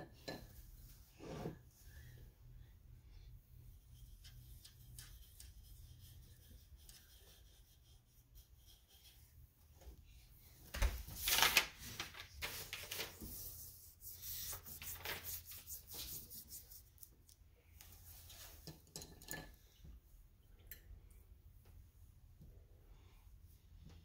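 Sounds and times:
paper rustling and scraping: 10.8s - 16.9s.

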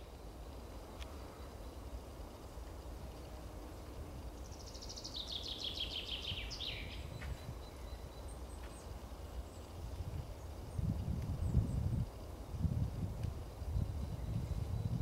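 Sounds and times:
songbird trilling: 4.5s - 8.9s.

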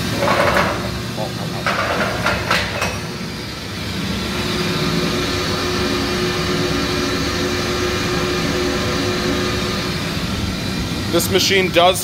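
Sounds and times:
mixer grinder motor humming: 3.2s - 11.8s.

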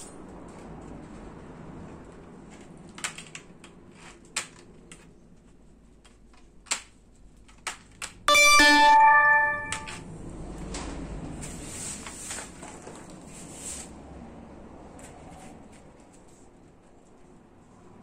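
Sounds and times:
loud steady pitched tone: 8.3s - 10.0s.

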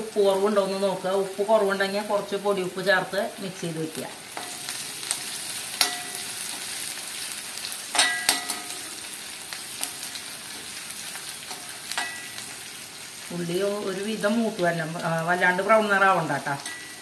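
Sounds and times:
onions sizzling in hot oil: 0.0s - 17.0s
metal spoon clinking on pan: 4.4s - 6.6s, 7.9s - 8.8s, 11.5s - 12.4s, 16.6s - 17.0s.

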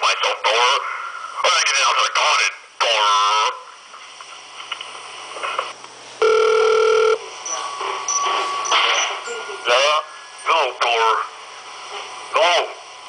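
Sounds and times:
telephone beep: 6.2s - 8.3s
faint phone line noise: 6.2s - 10.9s.

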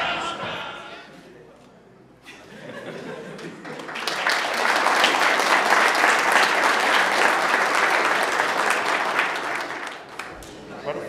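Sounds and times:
audience applauding: 3.4s - 10.4s.

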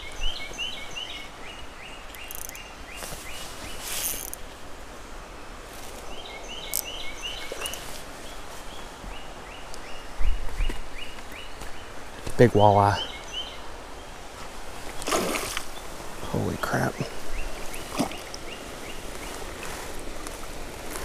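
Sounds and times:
fish splashing: 14.9s - 15.8s, 17.5s - 18.5s.

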